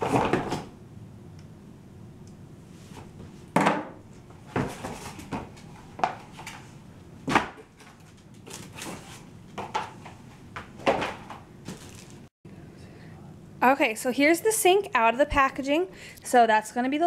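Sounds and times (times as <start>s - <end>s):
knocks and thumps of packing: 0.0s - 0.7s, 9.6s - 12.2s
cardboard and plastic rustling: 4.3s - 12.3s.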